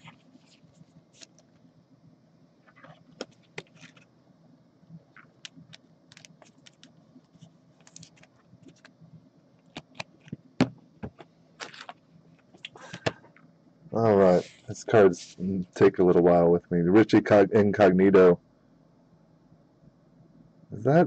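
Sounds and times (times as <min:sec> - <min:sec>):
trading cards clicking and scraping: 0:02.7 - 0:04.1, 0:05.2 - 0:08.9.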